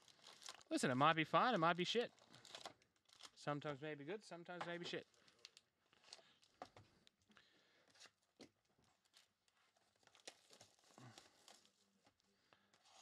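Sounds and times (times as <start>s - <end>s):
foil packs rustling: 0.0s - 3.4s.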